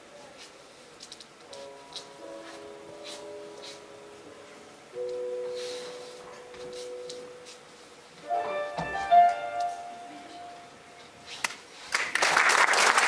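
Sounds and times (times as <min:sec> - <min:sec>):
piano notes ringing: 0:01.3 - 0:11.3
audience applause: 0:11.9 - 0:13.0.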